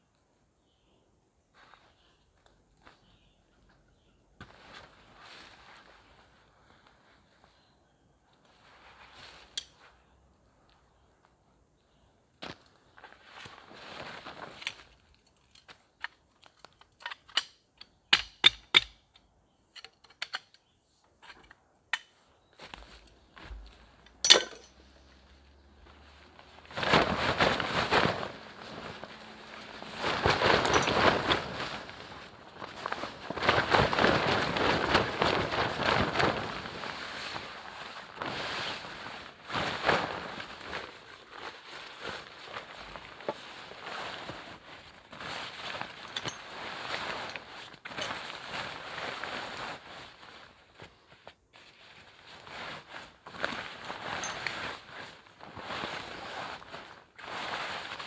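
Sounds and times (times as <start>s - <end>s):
loud rustling and crinkling: 12.4s - 17.0s, 22.5s - 58.0s
camping gear clicks and knocks: 14.4s - 24.8s, 29.9s - 31.9s, 45.9s - 48.5s, 53.7s - 54.8s.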